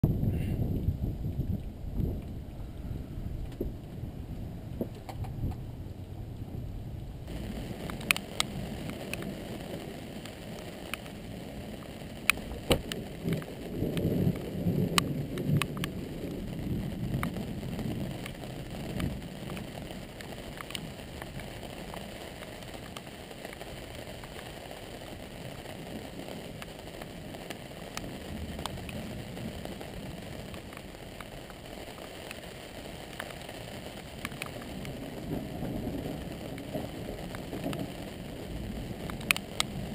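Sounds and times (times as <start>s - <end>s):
steady rain: 0.0s - 39.9s
thunder rumble: 0.0s - 39.9s
sharp clicks: 7.9s - 8.5s.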